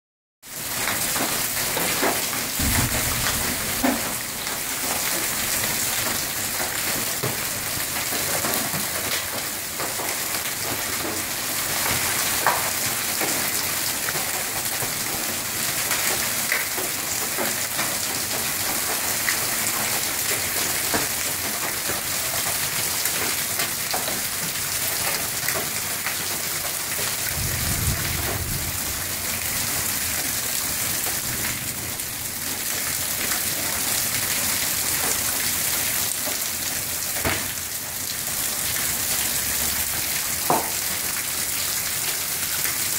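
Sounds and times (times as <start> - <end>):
hailstones ticking on pavement: 0.5 - 42.9
heavy rain hiss: 0.8 - 6.6.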